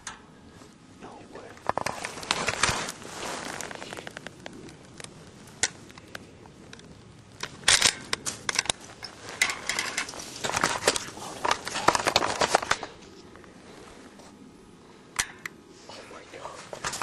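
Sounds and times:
crunching and rustling: 0:00.0 - 0:14.5, 0:16.3 - 0:17.0.

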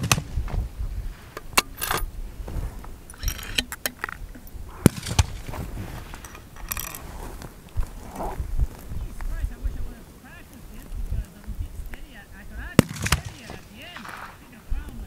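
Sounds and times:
wind rumble on microphone: 0:00.0 - 0:13.5
rifle bolt metallic clicks: 0:01.4 - 0:02.1, 0:03.1 - 0:05.4, 0:06.1 - 0:07.0.

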